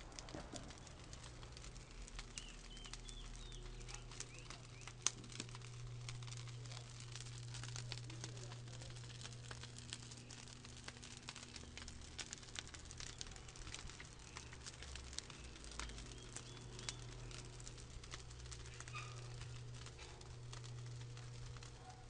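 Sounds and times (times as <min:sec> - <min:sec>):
charcoal crackling: 0:00.0 - 0:22.0
bird chirping: 0:02.3 - 0:05.0, 0:15.8 - 0:17.3.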